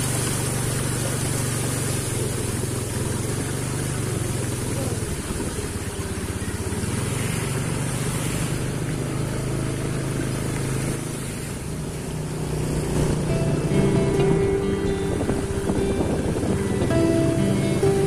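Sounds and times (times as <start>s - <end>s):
tyres hissing on wet road: 0.0s - 18.0s
vehicle engine running: 0.0s - 18.0s
wind noise: 13.0s - 18.0s.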